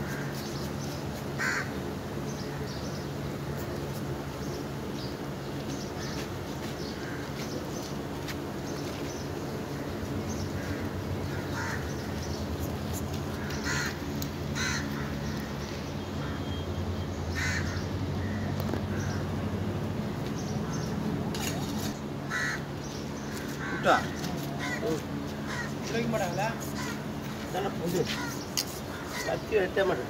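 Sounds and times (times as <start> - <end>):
crows cawing: 0.0 - 0.5, 1.4 - 1.8, 6.0 - 7.6, 9.7 - 12.3, 13.2 - 16.6, 17.3 - 19.2, 22.2 - 30.0
low mechanical hum: 0.0 - 30.0.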